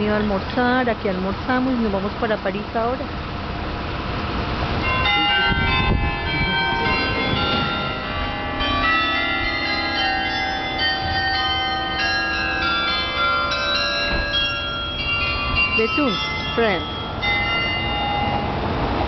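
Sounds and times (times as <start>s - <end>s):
bells ringing: 4.7s - 19.0s.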